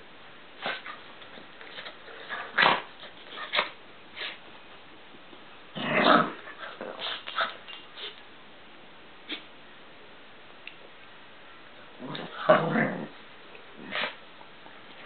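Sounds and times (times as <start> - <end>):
dog growling and whining: 5.8 - 7.2, 12.0 - 13.2, 13.8 - 14.2.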